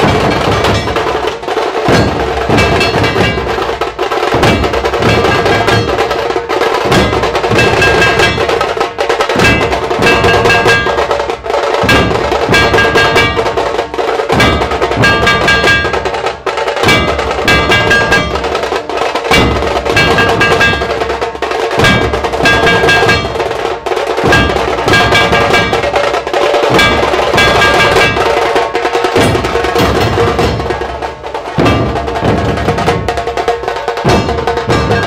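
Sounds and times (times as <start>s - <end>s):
barrel drums beaten fast: 0.0s - 35.0s
metal plate ringing: 0.0s - 35.0s.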